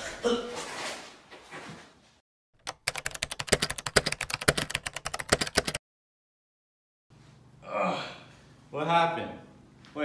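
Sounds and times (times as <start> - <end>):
rapid keyboard typing clicks: 2.6 - 5.8.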